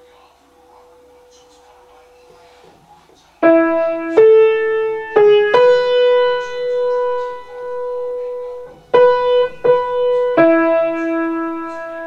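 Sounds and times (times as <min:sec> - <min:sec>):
solo instrumental melody: 0:03.4 - 0:12.0.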